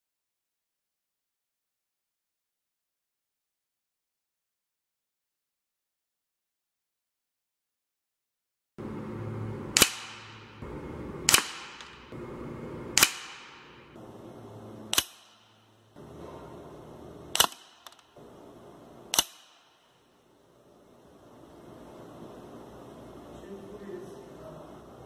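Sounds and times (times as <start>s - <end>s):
pellet hitting target: 9.7s - 10.6s, 11.2s - 12.1s, 13.0s - 13.8s
air rifle shots: 9.7s - 12.2s, 12.9s - 14.0s, 14.9s - 15.7s, 17.3s - 18.2s, 19.1s - 20.0s.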